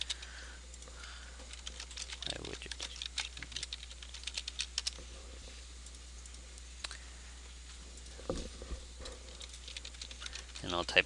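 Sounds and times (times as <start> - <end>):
faint low hum: 0.0 - 11.0
keyboard keystrokes: 1.5 - 5.0.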